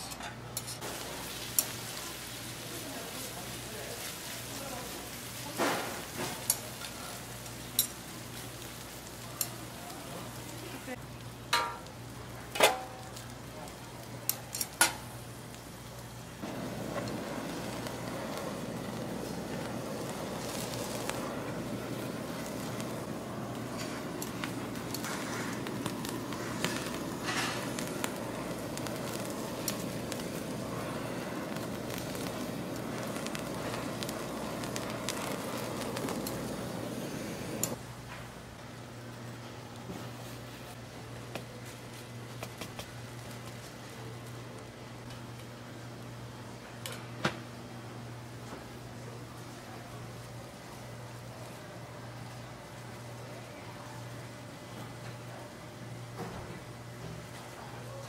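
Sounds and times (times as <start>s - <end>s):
blowtorch hissing: 0.8s - 11.0s, 11.6s - 37.8s
meat frying: 0.8s - 37.8s
metal tongs clinking on griddle: 1.5s - 1.8s, 5.7s - 8.0s, 11.5s - 11.9s, 12.5s - 13.3s, 14.2s - 15.1s
steady hum: 16.2s - 37.9s.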